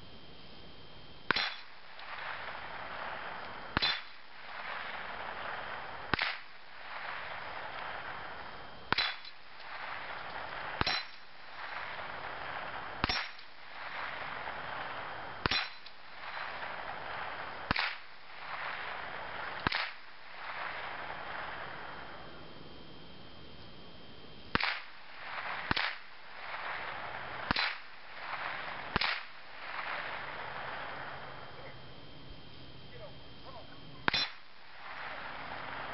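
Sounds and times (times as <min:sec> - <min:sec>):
rifle shots: 0:01.3 - 0:22.3, 0:24.5 - 0:31.8, 0:34.0 - 0:35.9
steel plate ringing: 0:10.8 - 0:11.3, 0:15.4 - 0:16.0, 0:34.1 - 0:34.5
bullet clanging on steel plate: 0:15.5 - 0:15.9, 0:34.1 - 0:34.4.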